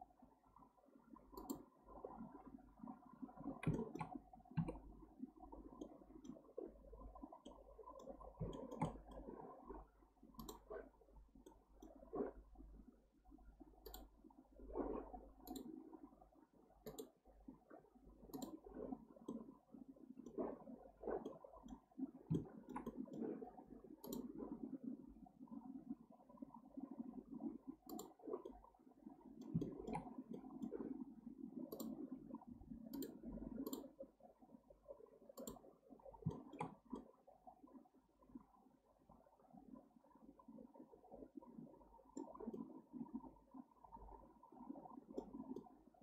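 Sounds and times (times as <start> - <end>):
computer mouse clicking: 1.4 - 1.6, 3.6 - 4.9, 7.4 - 9.2, 10.4 - 10.7, 13.8 - 14.1, 15.4 - 15.7, 16.8 - 17.2, 18.3 - 18.6, 21.2 - 23.3, 24.0 - 24.3, 27.9 - 28.6, 29.4 - 30.8, 31.7 - 32.1, 32.9 - 33.9, 35.4 - 35.6, 36.2 - 37.1.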